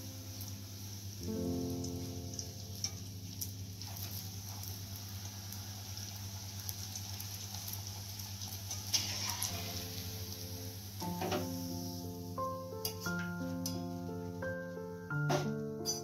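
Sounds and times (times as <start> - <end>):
deep-frying sizzle: 0.0 - 16.0
background music: 9.5 - 16.0.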